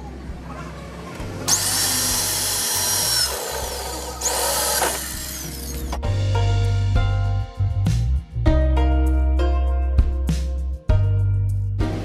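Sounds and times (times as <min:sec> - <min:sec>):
electric drill boring metal: 0:01.5 - 0:06.0.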